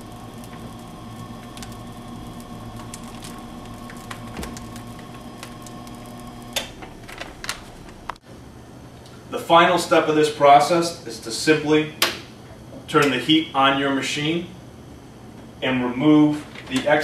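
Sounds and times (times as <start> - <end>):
laminator motor humming: 0.0 - 9.7.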